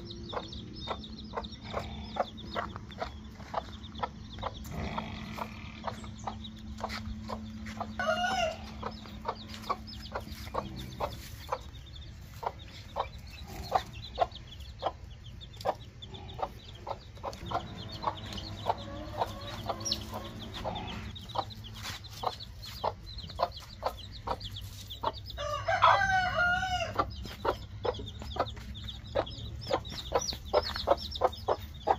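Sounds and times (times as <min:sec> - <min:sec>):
chicks peeping: 0:00.0 - 0:31.9
hen clucking: 0:00.0 - 0:31.9
rooster crowing: 0:08.0 - 0:08.8, 0:17.8 - 0:20.6, 0:25.4 - 0:27.0.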